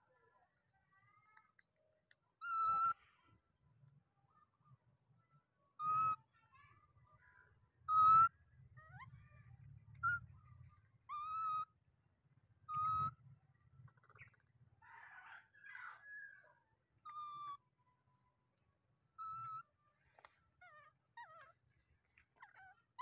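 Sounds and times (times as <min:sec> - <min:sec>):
baby monkey coo calls: 0:02.4 - 0:03.0, 0:05.8 - 0:06.6, 0:07.8 - 0:11.8, 0:12.6 - 0:13.2, 0:13.8 - 0:16.4, 0:17.0 - 0:17.7, 0:19.1 - 0:21.6, 0:22.3 - 0:23.0
faint low rumble: 0:06.7 - 0:15.1.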